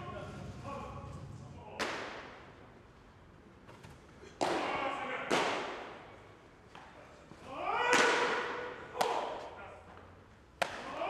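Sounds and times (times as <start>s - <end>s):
baseballs smacking into mitts: 1.8s - 2.5s, 3.7s - 7.0s, 7.8s - 10.0s, 10.6s - 11.0s.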